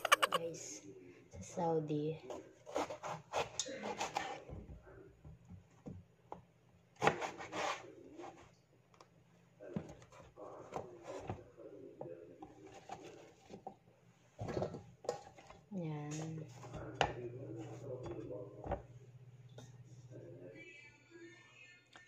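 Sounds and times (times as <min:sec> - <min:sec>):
knife slicing eggplant: 0:02.3 - 0:04.4, 0:07.0 - 0:07.8.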